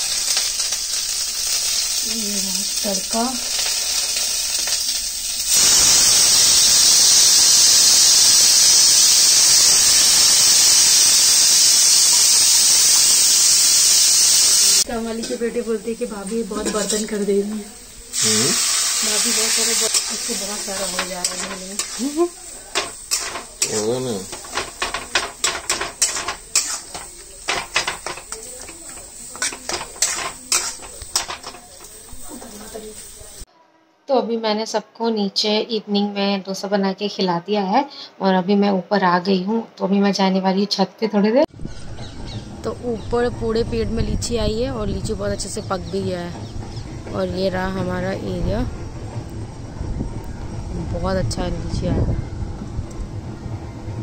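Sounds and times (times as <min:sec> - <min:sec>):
pressure cooker steam hiss: 0:00.0 - 0:33.5
steel spatula scraping metal pan: 0:19.6 - 0:32.9.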